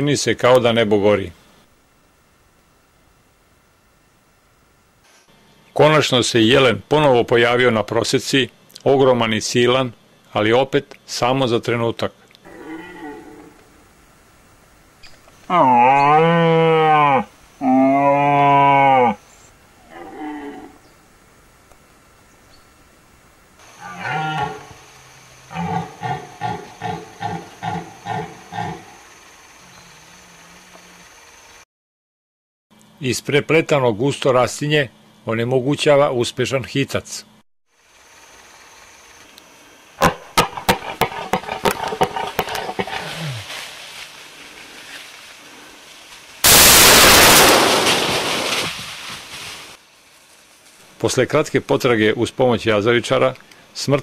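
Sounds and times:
red deer stag roaring: 0:12.4 - 0:13.8, 0:15.5 - 0:20.8, 0:23.8 - 0:28.9, 0:40.9 - 0:43.5.

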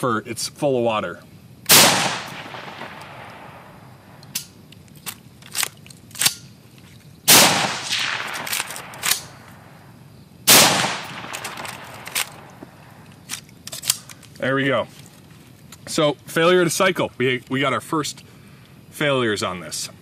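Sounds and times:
rifle shots: 0:01.7 - 0:04.5, 0:07.3 - 0:09.7, 0:10.5 - 0:12.9
rifle bolt clicks: 0:04.2 - 0:06.5, 0:07.6 - 0:09.6, 0:10.6 - 0:14.3.

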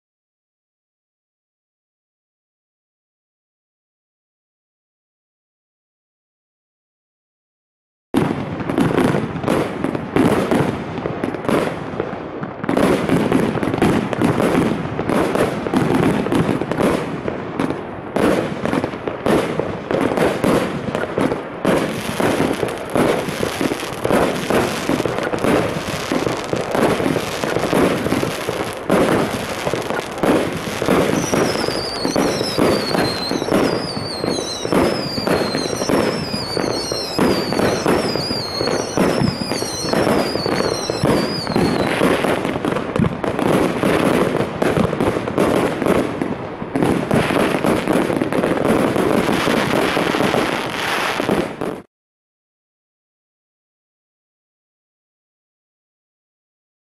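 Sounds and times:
fireworks cracks and thumps: 0:12.7 - 0:51.9
high falling whistle: 0:31.1 - 0:41.9.

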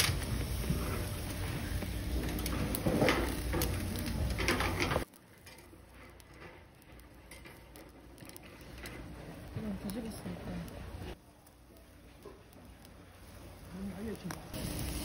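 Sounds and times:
scallops sizzling over charcoal: 0:00.0 - 0:15.0
restaurant table clatter: 0:02.2 - 0:05.7.

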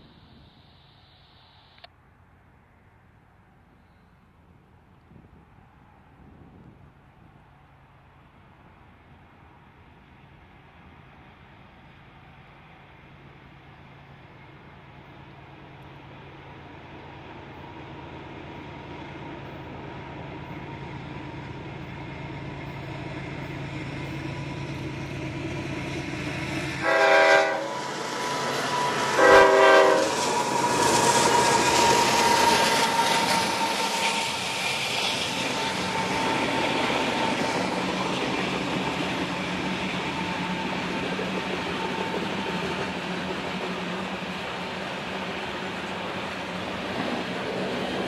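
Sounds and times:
diesel locomotives: 0:00.0 - 0:48.0
train horn blasts: 0:26.8 - 0:32.3
train wheel clatter: 0:27.8 - 0:48.0.

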